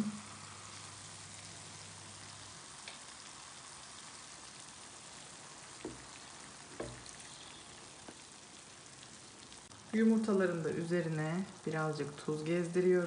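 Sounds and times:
onions sizzling in a frying pan: 0.0 - 13.0
eggs thumping into pan: 5.7 - 7.2.

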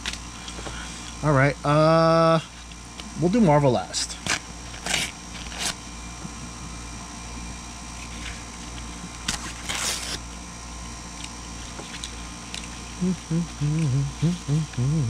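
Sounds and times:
steady low hum: 0.0 - 15.0
foil wrapper crinkling: 4.2 - 5.8, 7.9 - 10.3.

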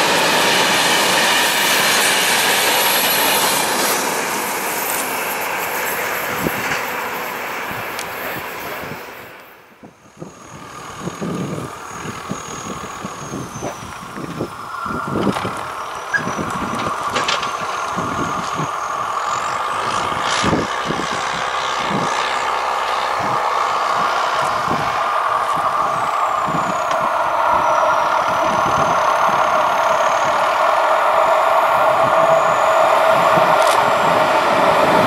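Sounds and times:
diesel train engine: 0.0 - 35.0
wind buffeting microphone: 6.1 - 6.9, 9.8 - 35.0.

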